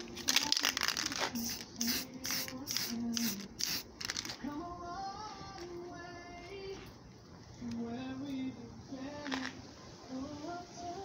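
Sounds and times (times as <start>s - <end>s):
faint music: 0.0s - 11.0s
spray paint hissing: 0.7s - 4.2s.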